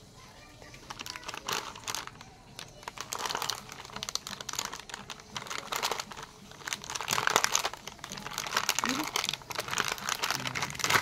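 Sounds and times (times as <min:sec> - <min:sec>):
plastic packet crinkling: 0:00.6 - 0:11.0.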